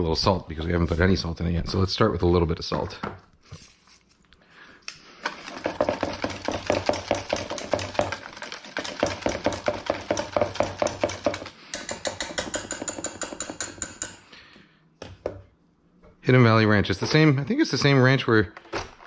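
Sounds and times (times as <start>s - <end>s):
whisk clicking in metal bowl: 5.3s - 14.2s.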